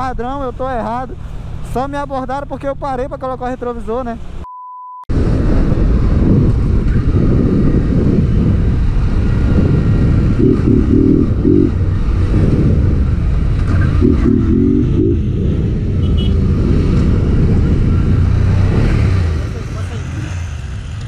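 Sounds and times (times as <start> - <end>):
motorcycle engine running: 5.4 - 21.0.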